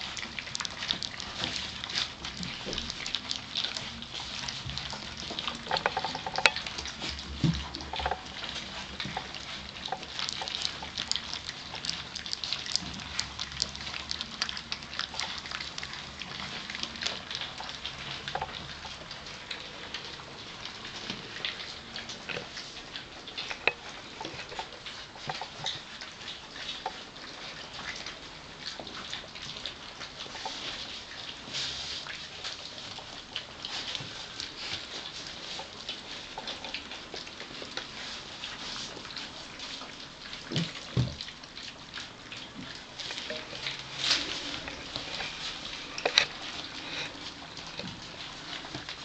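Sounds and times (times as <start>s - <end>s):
puppies lapping wet food: 0.0s - 49.0s.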